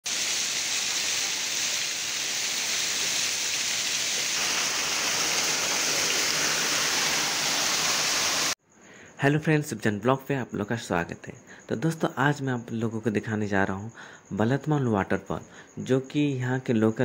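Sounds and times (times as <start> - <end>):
waterfall rushing and splashing: 0.1 - 8.6.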